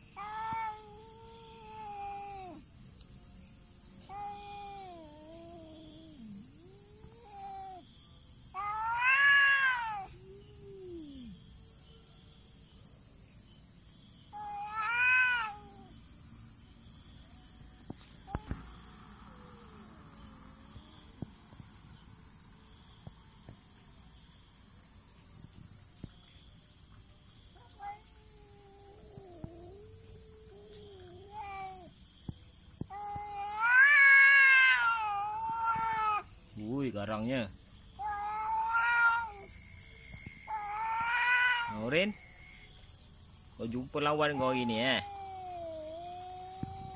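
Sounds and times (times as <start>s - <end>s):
crickets chirring: 0.0s - 46.9s
cat yowling: 0.1s - 2.6s, 4.1s - 7.9s, 8.5s - 11.4s, 14.3s - 15.9s, 27.6s - 32.0s, 32.9s - 36.3s, 38.0s - 39.6s, 40.4s - 42.0s, 44.0s - 46.9s
cat growl-moans: 4.1s - 7.8s, 8.6s - 11.4s, 27.7s - 31.9s, 38.0s - 39.6s, 44.3s - 46.9s.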